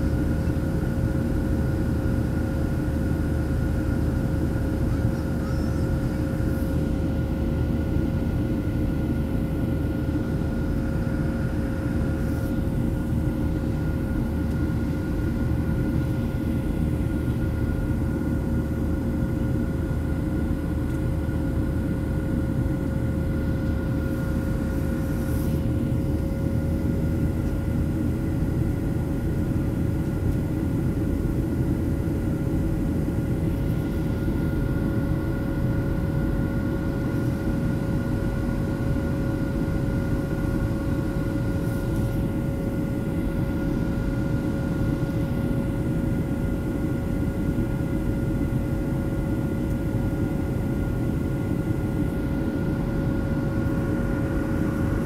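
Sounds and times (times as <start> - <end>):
airplane cabin drone: 0.0 - 55.0
jet engine whine: 0.0 - 55.0.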